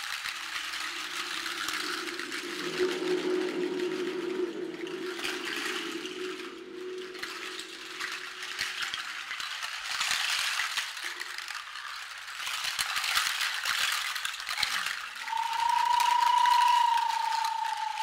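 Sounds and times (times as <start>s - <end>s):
low ringing tone: 0.6s - 9.0s, 15.2s - 18.0s
higher ringing tone: 15.2s - 18.0s.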